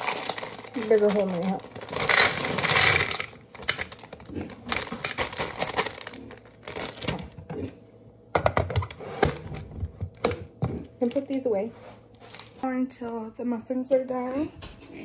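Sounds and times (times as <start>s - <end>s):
chocolate chips pouring into container: 0.0s - 4.0s
plastic bag crinkling: 0.0s - 7.4s, 12.2s - 12.6s.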